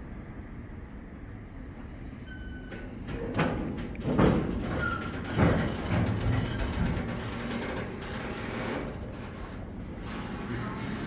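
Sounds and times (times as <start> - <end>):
heavy thumps and clunks: 3.1 - 7.3.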